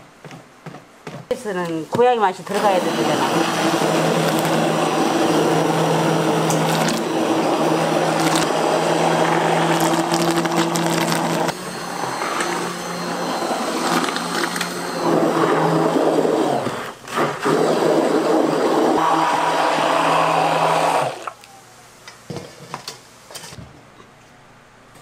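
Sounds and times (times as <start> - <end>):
electric motor humming: 2.5 - 21.4.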